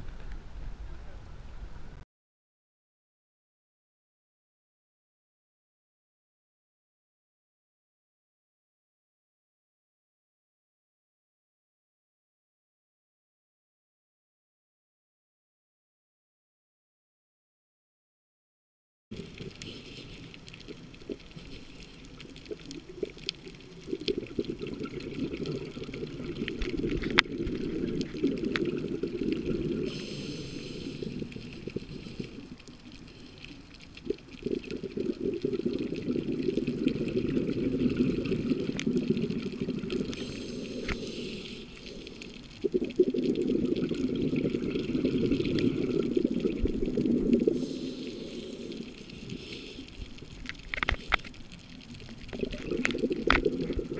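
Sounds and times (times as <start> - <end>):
underwater exhalation bubbling: 19.1 - 51.1, 51.9 - 53.9
regulator inhalation hiss: 29.7 - 33.5, 40.0 - 42.3, 47.4 - 50.2.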